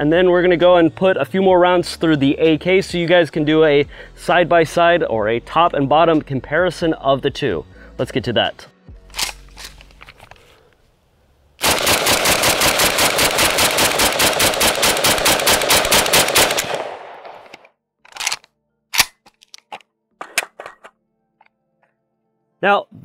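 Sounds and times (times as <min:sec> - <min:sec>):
gun handling clacks: 0:09.1 - 0:10.5, 0:16.5 - 0:20.9
rapid pistol shots: 0:11.6 - 0:17.6.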